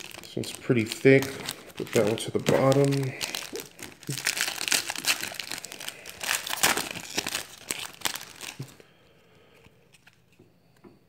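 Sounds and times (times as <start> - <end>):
foil wrapper crinkling and tearing: 0.0 - 8.8.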